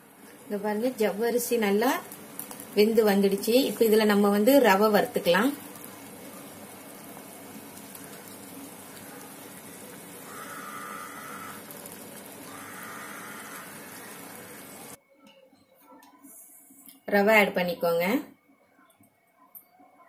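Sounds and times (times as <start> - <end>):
water boiling in a pot: 0.0 - 15.0.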